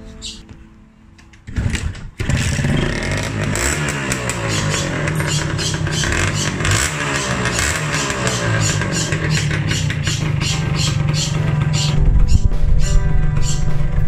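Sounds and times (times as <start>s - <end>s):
two-stroke engine starting and revving: 1.5s - 12.0s.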